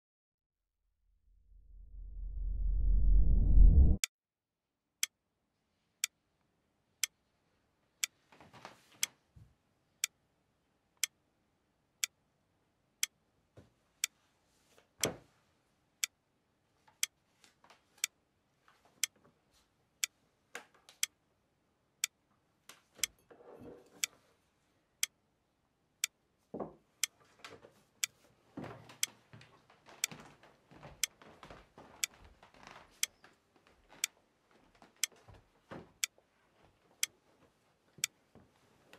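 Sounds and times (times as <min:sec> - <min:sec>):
clock ticking: 0:23.0 - 0:23.2.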